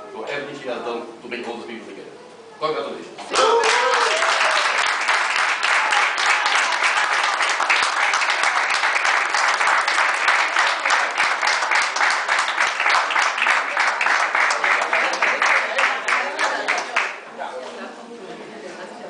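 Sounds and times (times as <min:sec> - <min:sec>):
people applauding: 0:03.3 - 0:17.3.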